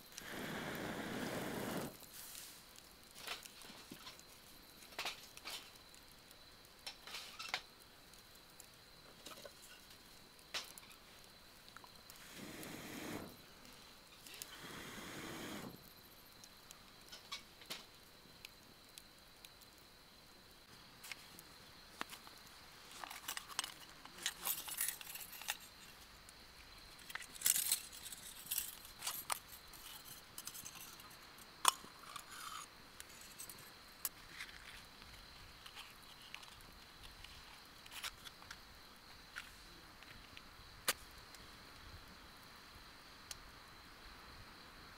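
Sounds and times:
wood fire crackling: 0.0s - 42.5s
camp gear clicking and rustling: 22.9s - 25.8s.

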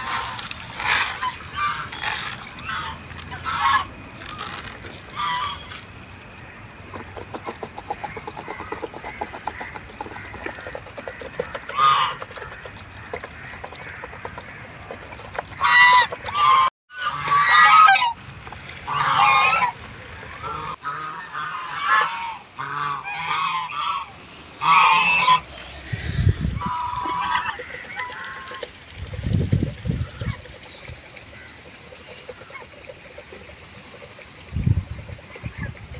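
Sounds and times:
geese honking: 0.0s - 4.5s, 5.1s - 5.7s, 11.1s - 12.6s, 15.6s - 18.2s, 18.9s - 19.8s, 20.4s - 25.5s, 26.2s - 28.6s.

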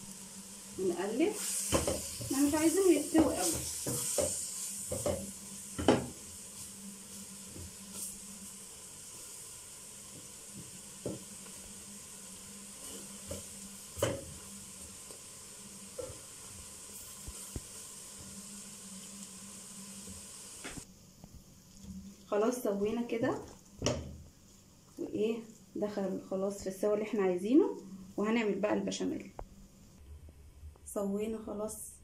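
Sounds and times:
food sizzling in a pot: 0.0s - 20.9s.

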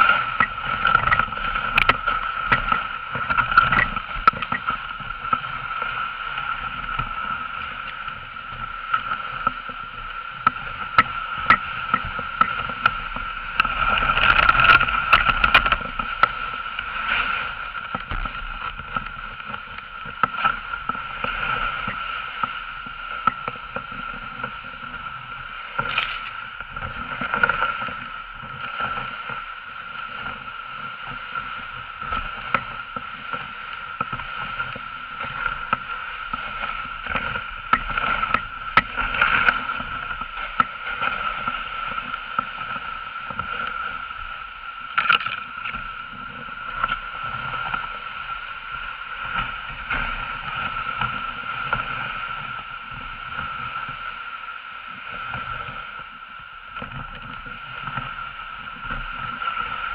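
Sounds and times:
sled knocking and jolting: 0.0s - 44.0s
sled runners swishing on snow: 0.0s - 59.9s.

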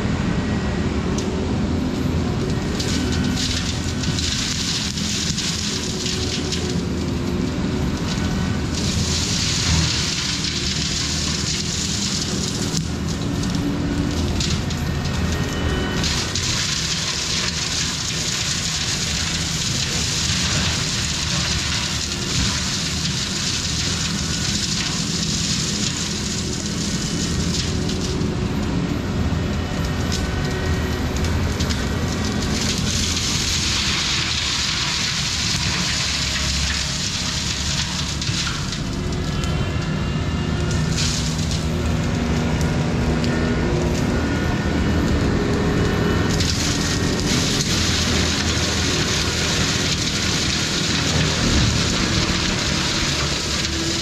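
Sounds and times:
diesel engine under load: 0.0s - 54.0s
crackles of wood chips: 2.4s - 54.0s
mulching head shredding brush: 29.6s - 54.0s.

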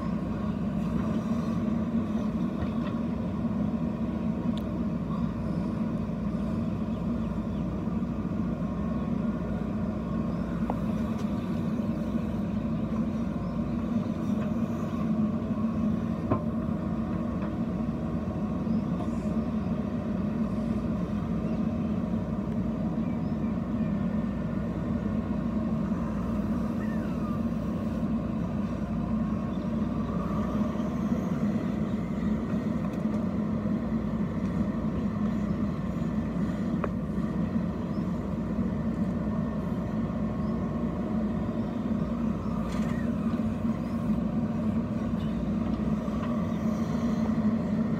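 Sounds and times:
diesel engine running steadily: 0.0s - 47.9s.

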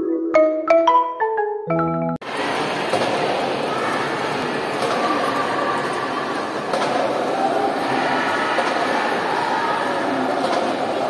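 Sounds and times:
crowd din in sports hall: 2.2s - 11.0s.

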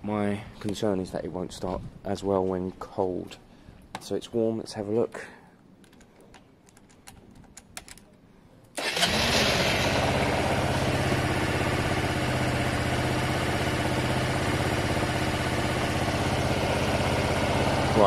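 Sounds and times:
motorcycle engine starting and idling: 8.8s - 18.0s.

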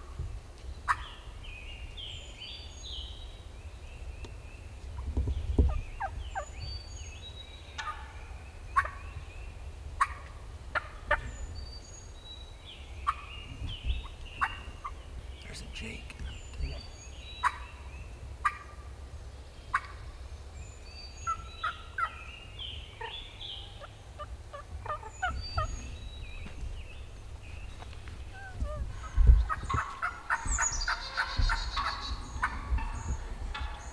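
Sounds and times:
turkey gobbling: 0.9s - 1.1s, 5.7s - 6.5s, 7.8s - 8.2s, 8.8s - 9.0s, 10.0s - 11.3s, 13.0s - 13.3s, 14.0s - 15.0s, 17.4s - 17.8s, 18.4s - 18.8s, 19.7s - 20.0s, 21.2s - 22.2s, 23.0s - 26.0s, 28.3s - 33.9s.

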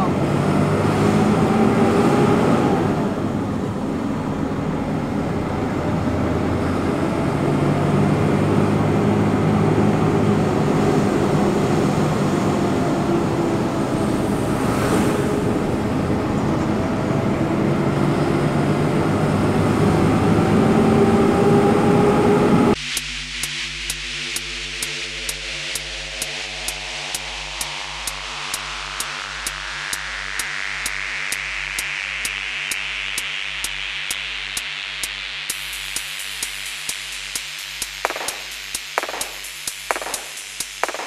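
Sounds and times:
truck engine running: 2.2s - 22.8s.

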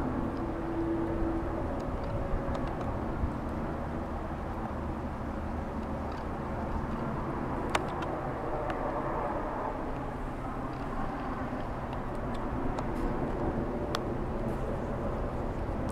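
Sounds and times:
low night background rumble: 0.0s - 15.9s.

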